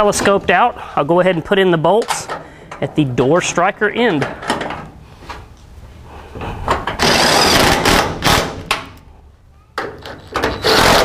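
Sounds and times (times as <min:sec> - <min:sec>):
impact driver running bolts: 0:06.9 - 0:08.8.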